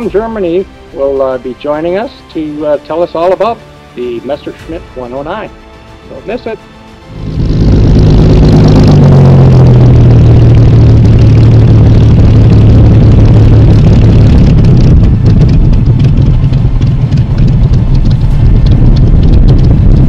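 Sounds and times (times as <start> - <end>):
aircraft engine droning: 4.6 - 20.0.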